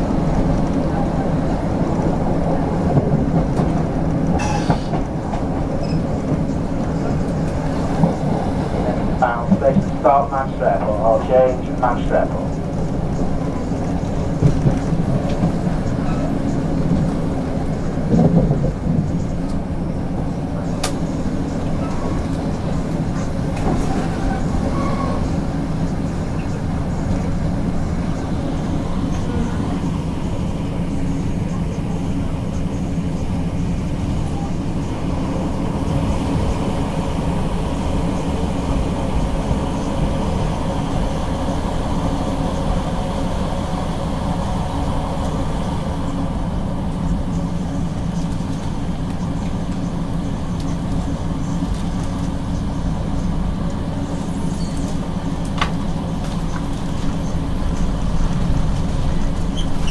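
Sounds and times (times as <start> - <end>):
diesel engine drone: 0.0 - 59.9
wheel and track rumble: 0.0 - 59.9.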